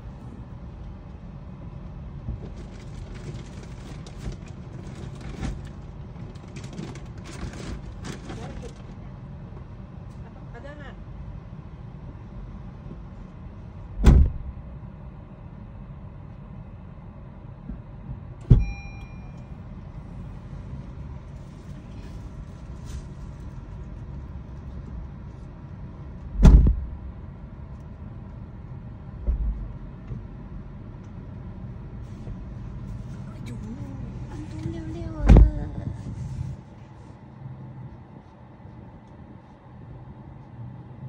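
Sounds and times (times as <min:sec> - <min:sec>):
low rumble: 0:11.0 - 0:40.6
car doors thumping shut: 0:14.0 - 0:14.5, 0:18.4 - 0:18.8, 0:26.4 - 0:27.0, 0:35.2 - 0:35.6
short electronic beep: 0:18.6 - 0:19.5.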